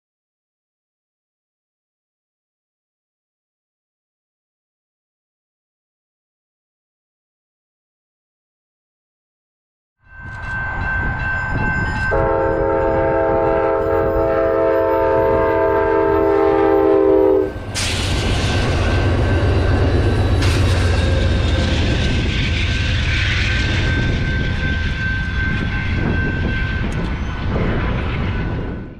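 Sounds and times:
crossing bell ringing: 10.0s - 28.9s
train engine rumble: 10.1s - 28.9s
train wheels on rails: 10.1s - 28.9s
train horn blast: 12.1s - 17.9s.

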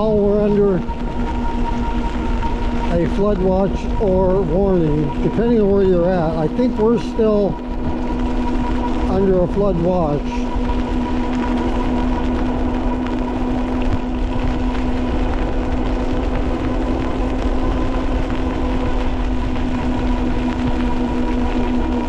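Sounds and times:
electric motor hum: 0.0s - 22.0s
tyres on wet pavement: 0.0s - 22.0s
wind on microphone: 0.0s - 22.0s.

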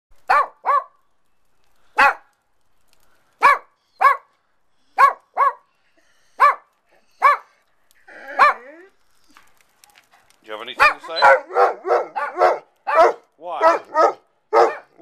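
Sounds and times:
small dog yapping: 6.4s - 7.5s, 8.1s - 8.8s, 10.8s - 14.9s.

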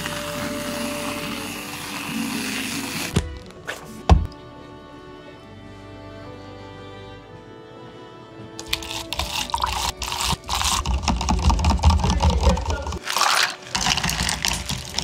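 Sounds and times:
plastic cups and ice clattering: 0.0s - 1.4s, 8.6s - 15.0s.

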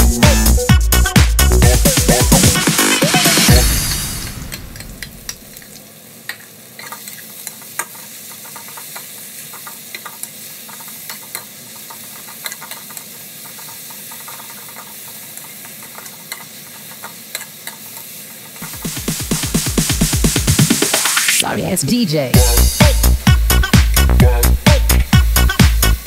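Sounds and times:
vegetables sizzling in oil: 2.6s - 21.4s.

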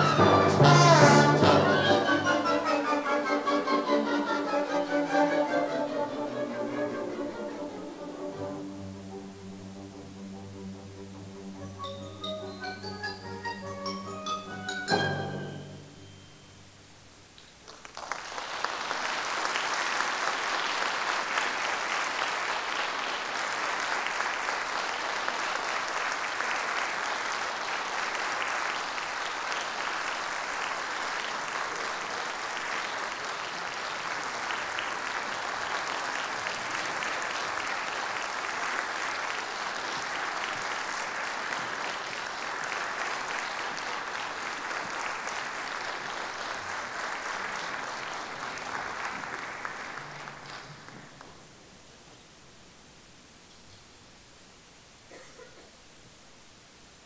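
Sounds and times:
audience applauding: 0.0s - 8.7s, 17.5s - 51.7s.

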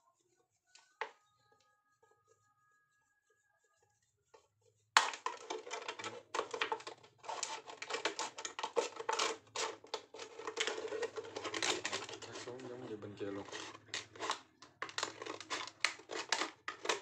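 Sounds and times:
scissors cutting plastic bottle: 5.0s - 17.0s.

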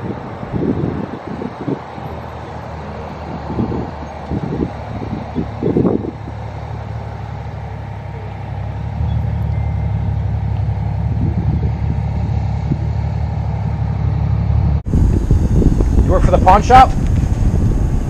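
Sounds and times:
road traffic rumble: 0.0s - 18.0s.

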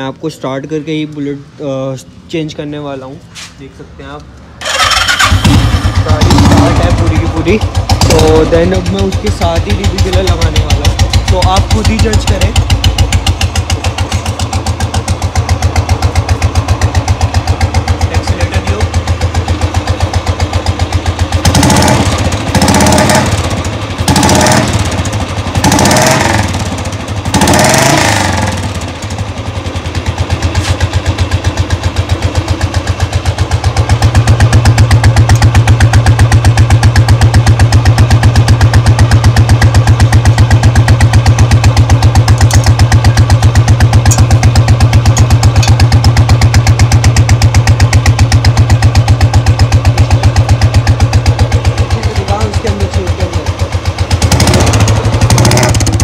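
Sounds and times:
motorcycle engine idling: 4.0s - 56.0s
engine revving surges: 4.6s - 7.4s, 21.4s - 24.9s, 25.6s - 26.6s, 27.3s - 28.8s, 54.2s - 56.0s.

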